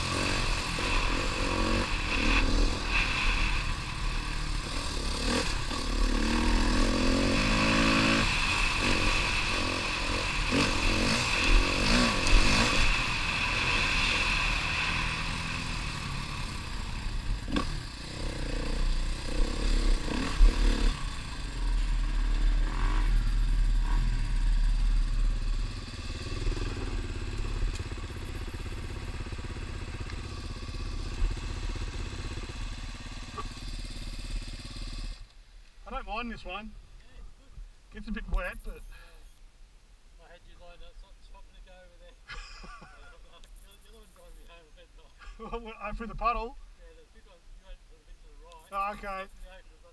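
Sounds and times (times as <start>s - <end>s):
motorbike engine revving: 0.0s - 35.3s.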